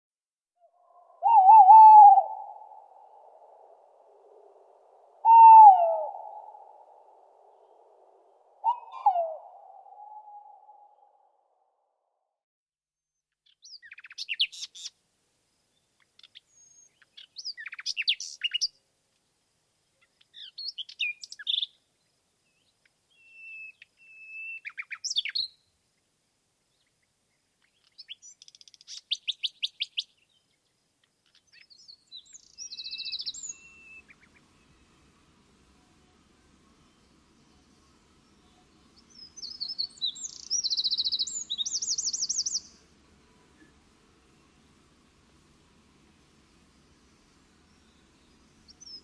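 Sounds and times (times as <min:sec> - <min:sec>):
faint background hiss: 0:00.6 - 0:12.0, 0:13.3 - 0:49.0
songbirds singing with trills: 0:08.6 - 0:10.8, 0:13.4 - 0:14.9, 0:15.7 - 0:18.8, 0:20.0 - 0:25.7, 0:26.7 - 0:49.0.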